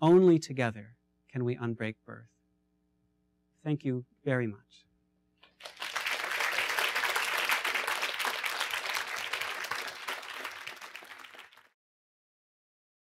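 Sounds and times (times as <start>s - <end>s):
audience applauding: 5.5s - 11.7s.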